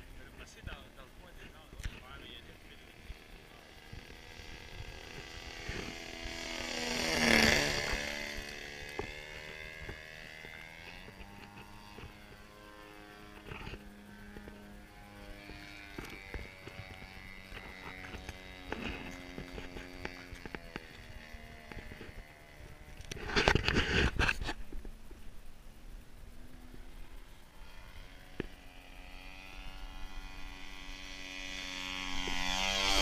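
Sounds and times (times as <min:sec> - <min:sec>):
model airplane engine fly-by: 0:00.0 - 0:33.0.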